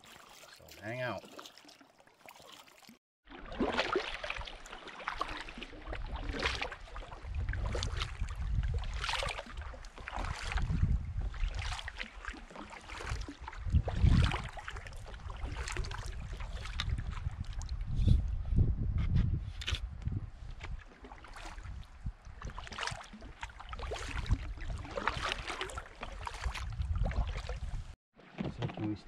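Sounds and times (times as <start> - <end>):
kayak paddle splashing in water: 0.0 - 17.8, 20.5 - 28.9
wind buffeting microphone: 7.2 - 9.0, 10.2 - 11.7, 13.2 - 20.9, 21.6 - 22.6, 26.4 - 28.0.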